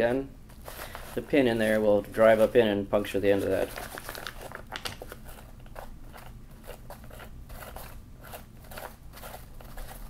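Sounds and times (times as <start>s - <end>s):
fabric crinkling: 0.6s - 10.0s.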